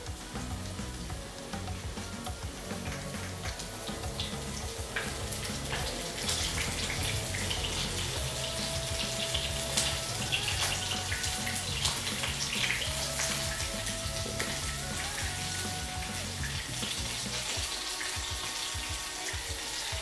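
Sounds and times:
chicken sizzling in hot oil: 0.0 - 20.0.

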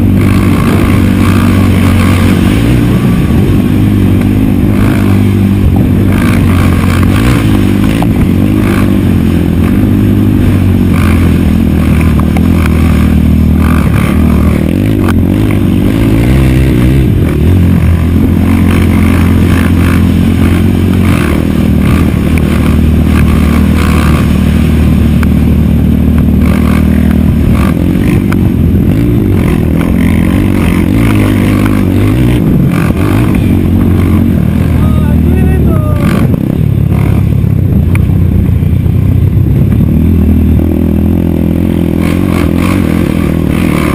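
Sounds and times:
quad engine revving: 0.0 - 43.9.

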